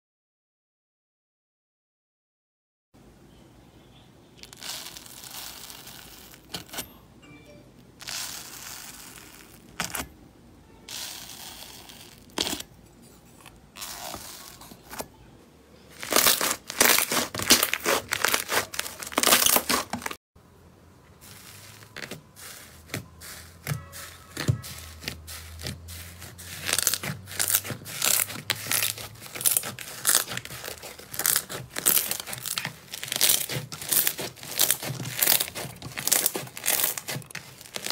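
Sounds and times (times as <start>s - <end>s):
slime squishing and crackling: 4.4s - 6.8s, 8.0s - 10.1s, 10.9s - 12.7s, 13.7s - 15.0s, 15.9s - 20.2s, 21.2s - 37.9s.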